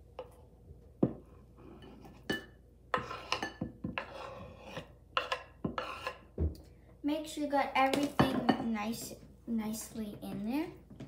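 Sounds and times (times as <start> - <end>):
knife scraping cutting board: 2.9 - 6.3.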